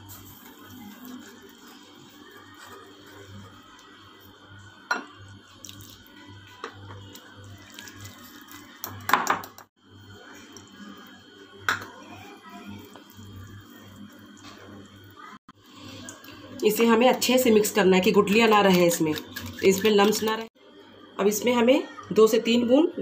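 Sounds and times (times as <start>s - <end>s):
whisk stirring batter: 0.0s - 4.2s, 16.0s - 20.5s.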